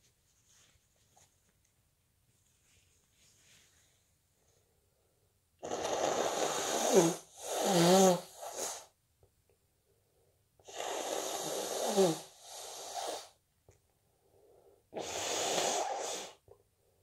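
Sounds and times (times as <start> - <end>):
soft snuffle: 0.0 - 1.5, 2.3 - 4.6, 5.6 - 8.9, 10.7 - 13.4, 15.0 - 16.4.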